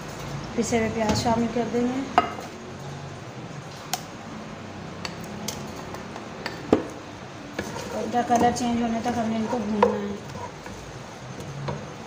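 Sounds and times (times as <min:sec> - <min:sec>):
wooden spatula tapping pot: 0:07.6 - 0:10.8.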